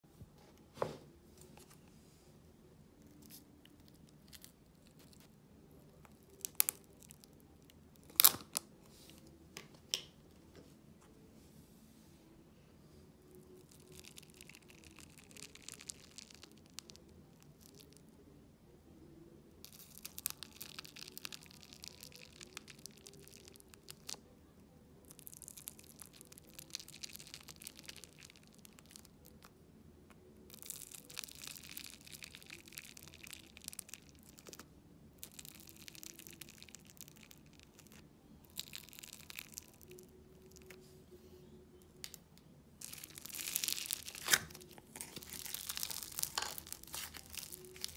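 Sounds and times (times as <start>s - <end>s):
clay crackling and tearing: 6.0s - 8.7s, 13.3s - 18.0s, 19.6s - 24.2s, 25.1s - 29.4s, 30.5s - 34.6s, 35.2s - 40.8s, 42.8s - 47.9s.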